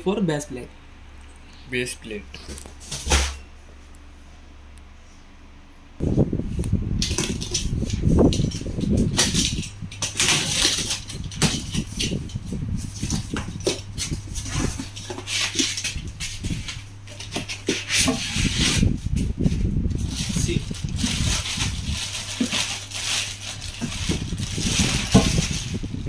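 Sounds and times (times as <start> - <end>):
cardboard scraping and tearing: 10.1 - 12.2, 12.8 - 26.0.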